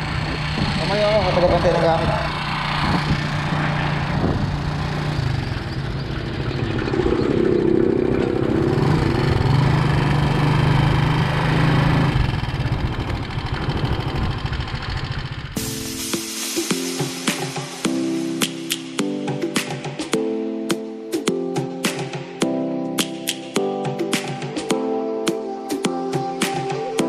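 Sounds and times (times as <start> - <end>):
motorcycle engine running: 0.0 - 15.9
wind rushing over microphone: 1.9 - 5.5.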